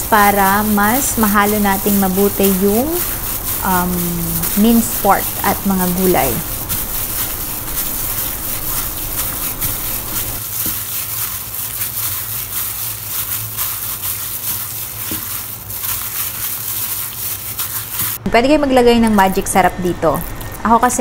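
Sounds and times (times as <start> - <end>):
steady low hum: 0.0 - 10.4, 18.2 - 21.0
wet squishing of kneaded meat: 0.1 - 18.2.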